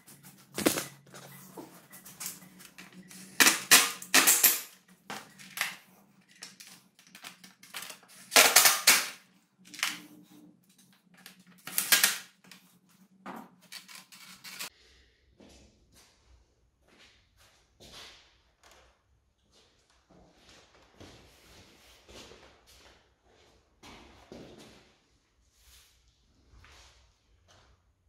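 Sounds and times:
hand tools clicking and knocking: 2.0s - 10.0s, 13.6s - 14.7s.

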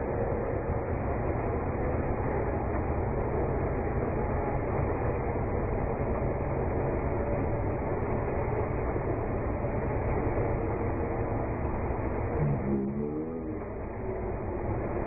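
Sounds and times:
diesel engine running: 12.1s - 15.0s.

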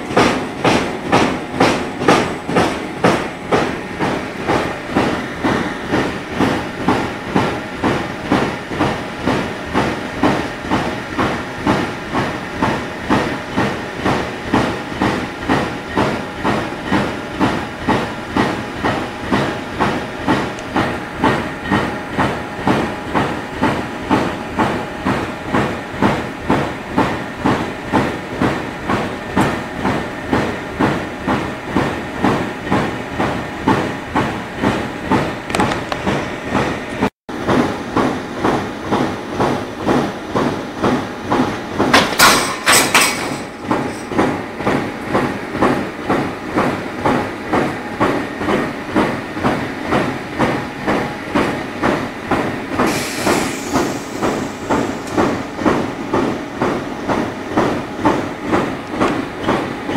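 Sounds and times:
press machine rhythmic clatter: 0.0s - 59.9s
loud hiss: 52.8s - 55.4s.

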